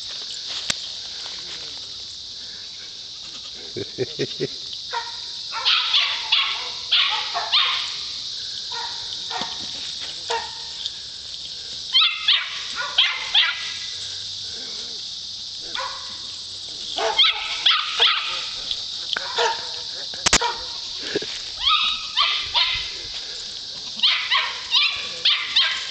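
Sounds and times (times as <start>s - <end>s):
steady high hiss: 0.0s - 25.9s
dog barking: 4.9s - 8.0s, 8.7s - 9.6s, 10.3s - 10.7s, 12.0s - 13.8s, 15.7s - 16.2s, 17.0s - 18.6s, 19.2s - 20.8s, 21.6s - 23.0s, 24.0s - 25.9s.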